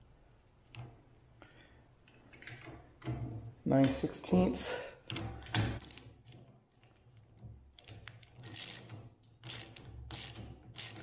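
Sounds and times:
socket ratchet clicking: 0:08.4 - 0:11.0.

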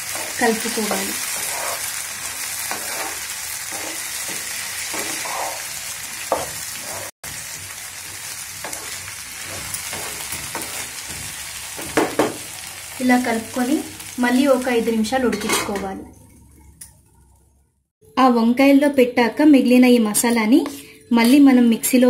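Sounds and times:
spatula scraping pan: 0:00.0 - 0:12.5
vegetables sizzling in oil: 0:00.0 - 0:15.8.

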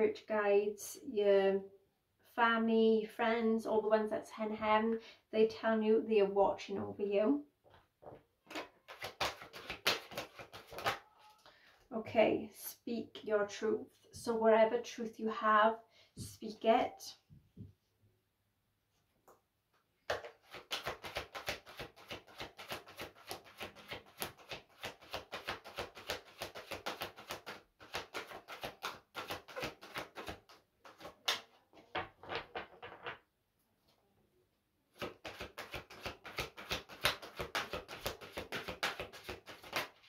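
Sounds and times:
cards being shuffled: 0:08.5 - 0:11.3, 0:20.1 - 0:31.6, 0:35.0 - 0:40.0.

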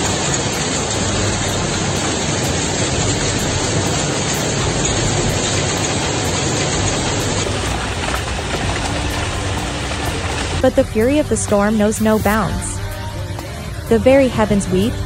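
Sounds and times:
hail and heavy rain: 0:00.0 - 0:10.6.

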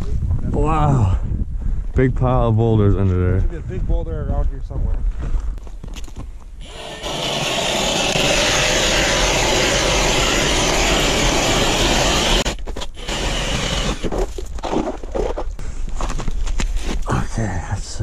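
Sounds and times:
short auger sounds in hole: 0:06.6 - 0:15.0
ice auger grinding through ice: 0:06.6 - 0:15.4.

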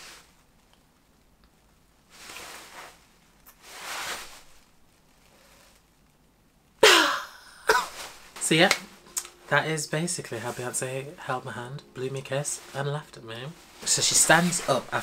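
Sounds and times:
soft rushing sounds: 0:07.9 - 0:15.0.

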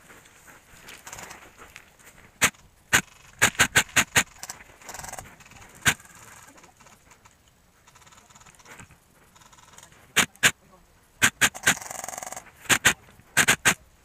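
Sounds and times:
airsoft gun shots: 0:02.4 - 0:04.3, 0:11.2 - 0:11.8, 0:12.7 - 0:13.8.

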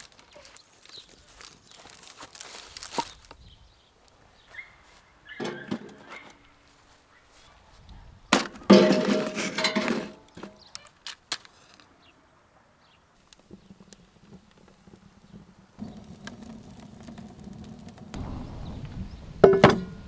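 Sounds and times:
logs clattering on metal stove: 0:08.4 - 0:10.7
fire burning: 0:13.2 - 0:20.0.

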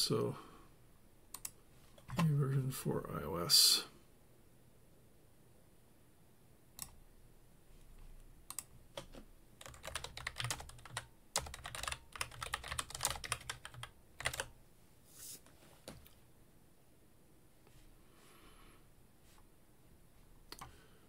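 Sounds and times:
typing on computer keyboard: 0:08.5 - 0:14.5.

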